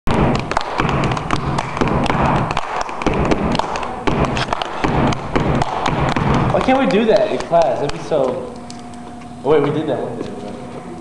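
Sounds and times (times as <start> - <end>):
hands clapping: 0.1 - 8.9
feet stomping: 0.1 - 9.3.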